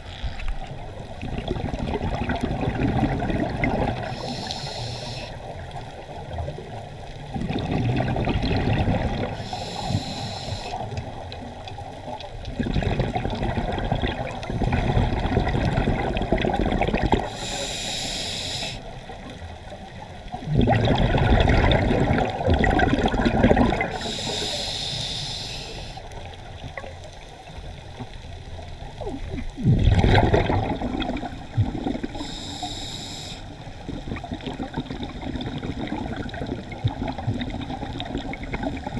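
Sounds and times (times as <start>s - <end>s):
bubbling exhale underwater: 1.2s - 4.7s, 6.2s - 11.2s, 12.5s - 17.7s, 20.3s - 24.6s, 29.0s - 32.7s, 33.8s - 38.9s
hissing regulator inhale: 4.0s - 5.4s, 9.3s - 11.0s, 17.2s - 19.0s, 23.9s - 26.2s, 32.1s - 33.7s.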